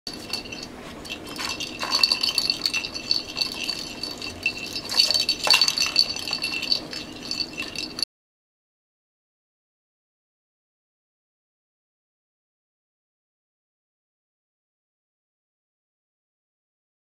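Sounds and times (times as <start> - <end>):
high-pitched jingle: 0.1 - 8.0.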